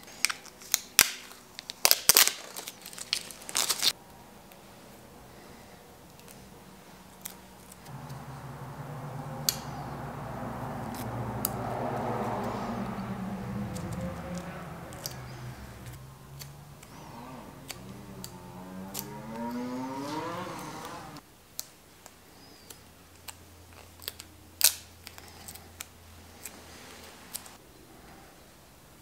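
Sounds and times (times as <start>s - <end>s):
fingernails and pick clicking: 15.9s - 19.8s.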